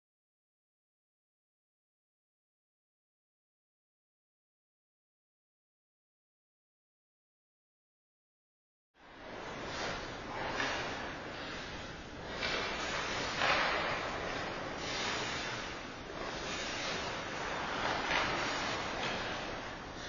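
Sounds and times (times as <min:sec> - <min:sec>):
skate blades scraping ice: 0:09.2 - 0:20.0.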